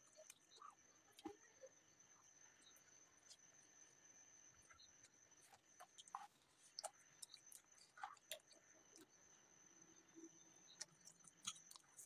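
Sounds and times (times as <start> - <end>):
wet chewing and mouth clicks: 5.9 - 9.1, 10.7 - 12.0.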